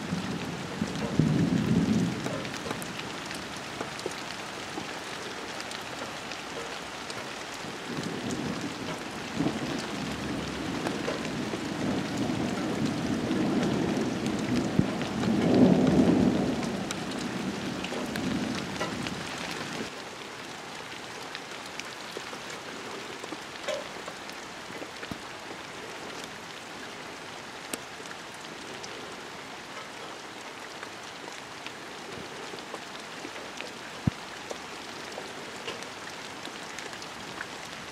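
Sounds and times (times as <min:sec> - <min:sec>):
thunder rumble: 0:00.0 - 0:04.0, 0:07.8 - 0:19.9
rain on foliage: 0:00.0 - 0:37.9.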